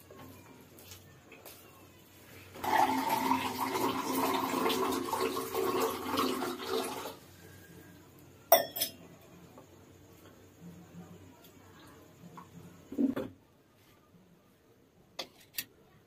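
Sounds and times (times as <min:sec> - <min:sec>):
water pouring into plastic glass: 0:02.6 - 0:07.2.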